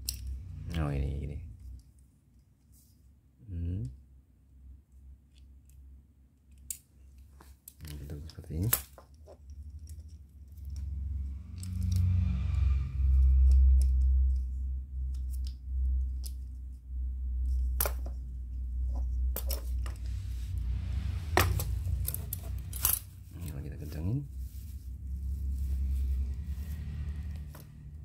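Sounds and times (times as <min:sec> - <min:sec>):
low rumble of handling: 0:09.2 - 0:28.0.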